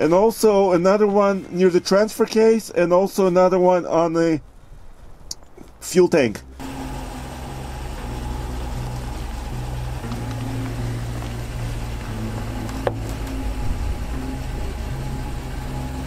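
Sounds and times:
truck engine humming: 6.4s - 16.0s.

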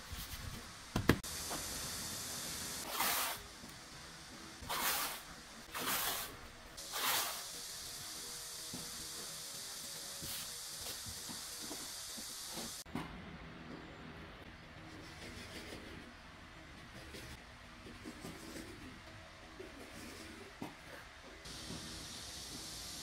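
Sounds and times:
tape unrolling hiss: 1.2s - 3.8s, 4.6s - 12.8s, 21.5s - 23.0s.

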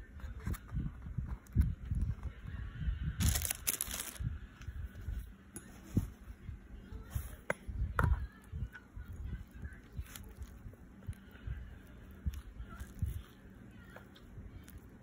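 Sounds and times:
rustling: 3.2s - 4.2s.

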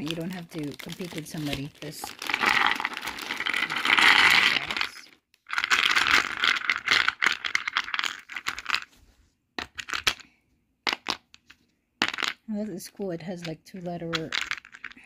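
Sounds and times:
plastic cubes rattling in a bag: 0.0s - 8.9s, 13.8s - 15.0s
plastic cubes clicking onto a tray: 10.9s - 12.4s.

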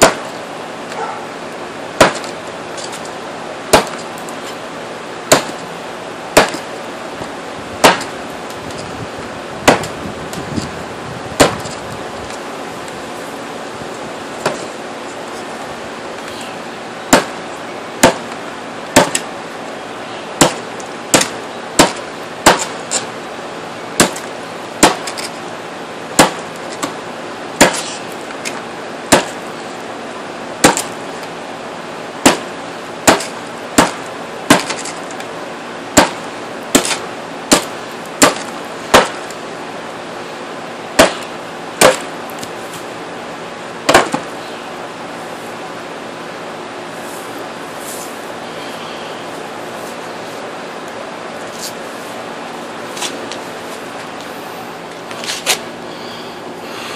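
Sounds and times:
cleaver chopping into board: 2.0s - 2.3s, 5.3s - 5.6s, 6.4s - 6.6s, 7.8s - 8.1s, 9.6s - 10.0s, 11.4s - 11.8s, 18.0s - 18.2s, 19.0s - 19.3s, 20.4s - 22.8s, 24.0s - 25.3s, 26.2s - 27.0s, 27.6s - 28.0s, 30.6s - 30.9s, 32.2s - 34.9s, 36.0s - 39.2s, 41.0s - 42.1s, 43.9s - 44.2s.

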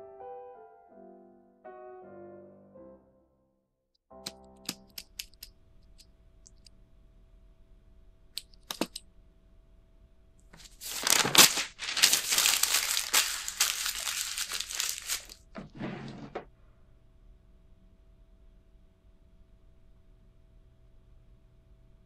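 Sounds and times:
paper tearing and crumpling: 10.6s - 15.5s
desk drawer opening: 15.5s - 16.5s.

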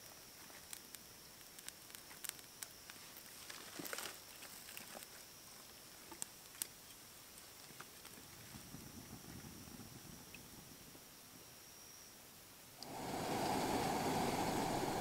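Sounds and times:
campfire crackling: 0.0s - 9.3s, 12.8s - 15.0s.

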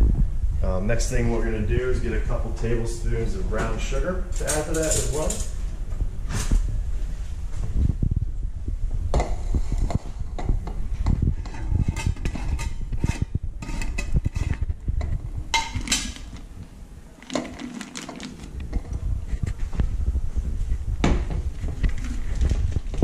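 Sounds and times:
plastic bag crinkling: 17.1s - 18.6s.

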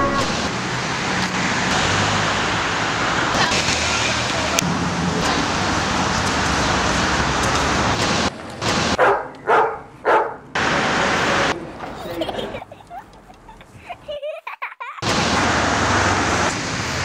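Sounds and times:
street noise: 0.0s - 17.0s
dog barking: 9.0s - 10.4s.

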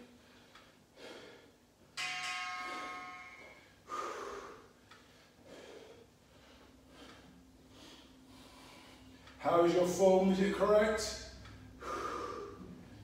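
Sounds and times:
man breathing forcefully: 0.2s - 1.6s, 3.7s - 9.4s, 11.8s - 13.0s
timer bell chime: 2.0s - 3.6s.

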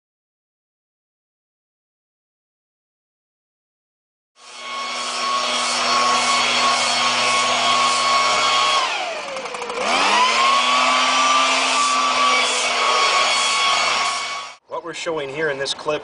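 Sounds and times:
leaf blower running: 4.4s - 14.6s.

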